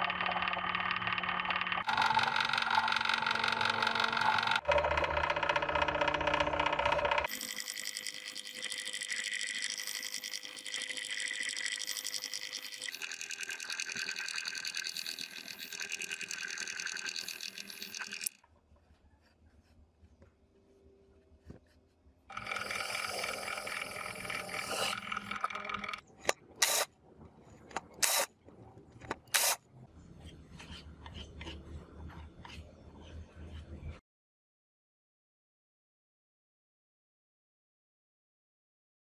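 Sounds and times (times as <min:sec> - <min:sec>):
drill press boring wood: 0:00.0 - 0:13.2, 0:22.3 - 0:26.0.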